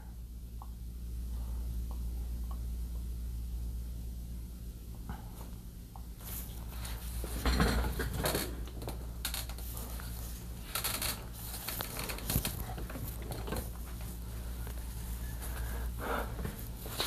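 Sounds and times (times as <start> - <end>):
low electrical hum: 0.0 - 17.0
rustling and scraping: 6.2 - 17.0.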